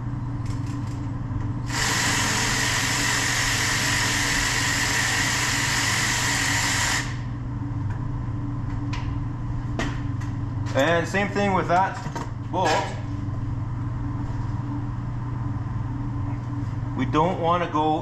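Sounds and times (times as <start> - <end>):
electric ratchet spinning: 1.7 - 7.2.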